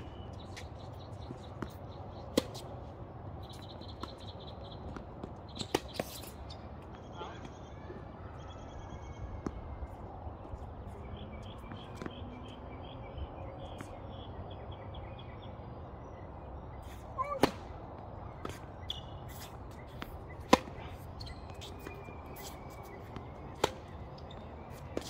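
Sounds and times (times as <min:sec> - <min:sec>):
tennis ball hits and bounces: 0:01.3 - 0:02.8, 0:03.5 - 0:06.4, 0:17.2 - 0:17.8, 0:18.4 - 0:25.0
racket striking ball: 0:01.6 - 0:02.7, 0:17.3 - 0:17.8, 0:19.9 - 0:25.0.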